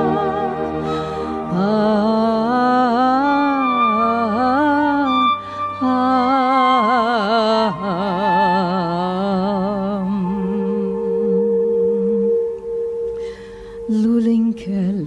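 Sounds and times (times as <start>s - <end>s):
held accompanying note: 0.0s - 9.1s
woman singing with vibrato: 0.0s - 13.1s, 13.8s - 15.0s.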